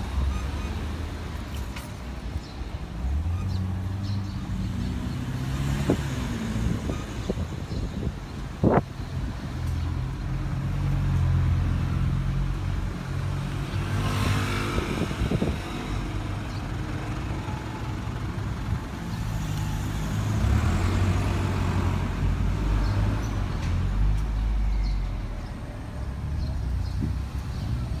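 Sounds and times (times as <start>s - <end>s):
traffic rumble: 0.0s - 28.0s
vehicle passing close by: 4.6s - 7.4s, 13.4s - 16.4s.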